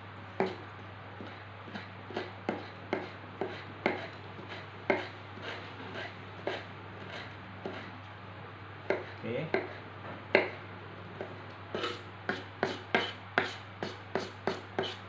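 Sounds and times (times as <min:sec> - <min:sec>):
knife chopping on plastic board: 0:00.4 - 0:00.6, 0:01.2 - 0:05.6, 0:08.9 - 0:10.6, 0:11.2 - 0:15.0.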